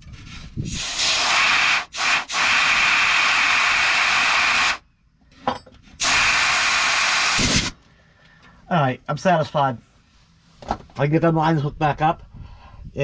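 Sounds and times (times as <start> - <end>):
compressed air hissing: 0.2 - 4.8, 6.0 - 7.8.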